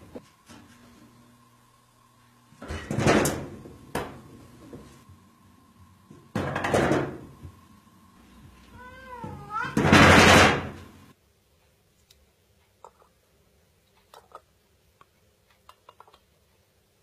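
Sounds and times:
cat meowing: 0:08.7 - 0:09.9.

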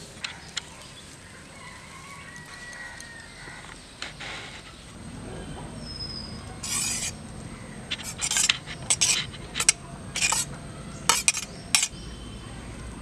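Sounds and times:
spoon scraping a cooking pot: 0:06.6 - 0:07.2, 0:07.9 - 0:10.5, 0:11.1 - 0:12.0.

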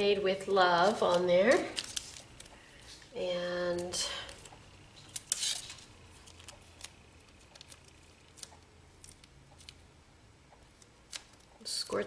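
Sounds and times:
small clicks and ticks: 0:06.2 - 0:09.8.

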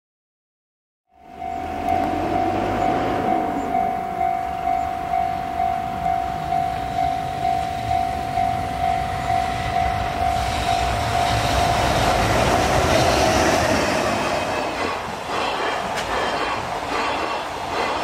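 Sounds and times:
freight train passing: 0:01.1 - 0:18.0
level-crossing alarm ringing: 0:01.1 - 0:18.0.

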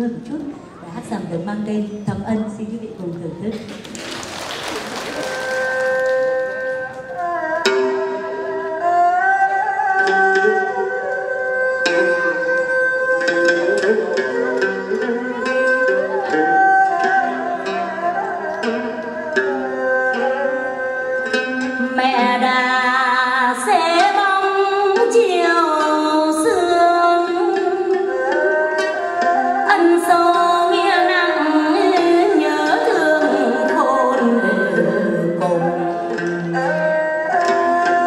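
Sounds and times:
plucked strings and percussion: 0:03.0 - 0:38.0
woman singing: 0:21.8 - 0:36.9.

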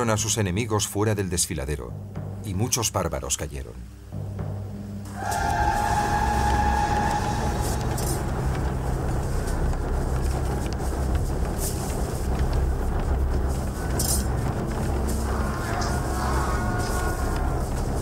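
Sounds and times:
rumble of fighting men: 0:05.3 - 0:18.0.

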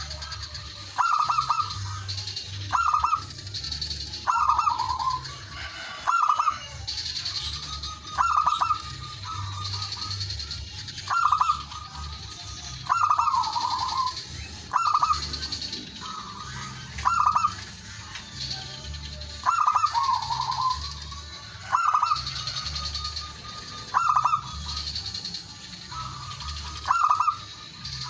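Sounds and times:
dove cooing: 0:00.0 - 0:28.0.

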